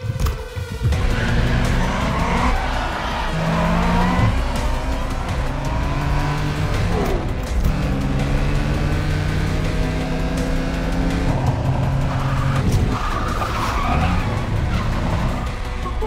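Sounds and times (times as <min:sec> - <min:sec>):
music: 0:00.0 - 0:16.0
car engines revving: 0:00.3 - 0:16.0
tyres squealing and spinning: 0:01.0 - 0:06.3, 0:11.4 - 0:16.0.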